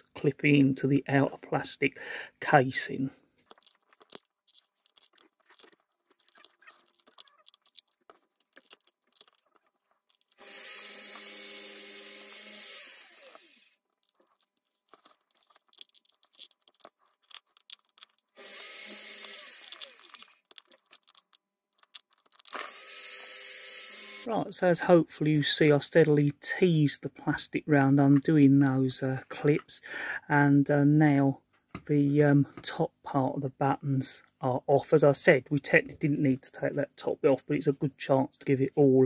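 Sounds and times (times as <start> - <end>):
small electric motor whirring: 10.3 - 13.8, 18.3 - 20.7, 22.4 - 24.3
plastic clips clicking and snapping: 19.2 - 22.7.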